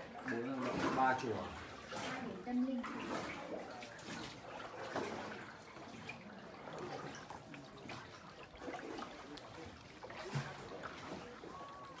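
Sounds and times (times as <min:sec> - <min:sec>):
faint splashes: 0:00.0 - 0:12.0
water lapping against boat hull: 0:00.0 - 0:12.0.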